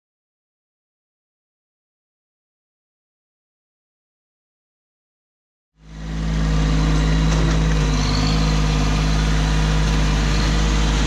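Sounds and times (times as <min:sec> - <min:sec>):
tractor diesel engine running: 0:05.8 - 0:11.0.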